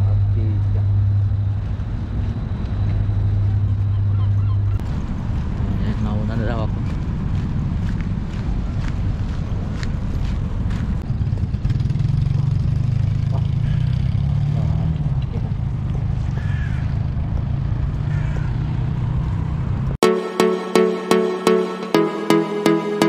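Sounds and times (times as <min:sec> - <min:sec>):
road traffic: 0:00.0 - 0:23.0
wind buffeting microphone: 0:00.9 - 0:11.8
electronic music with steady beat: 0:20.0 - 0:23.0.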